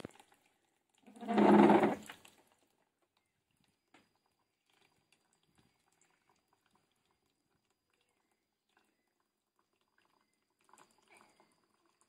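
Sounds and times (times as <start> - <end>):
water trickling and dripping: 0.0 - 12.0.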